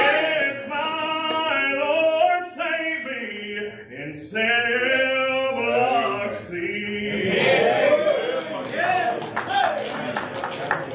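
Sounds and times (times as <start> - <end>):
man singing gospel solo: 0.0 - 7.3.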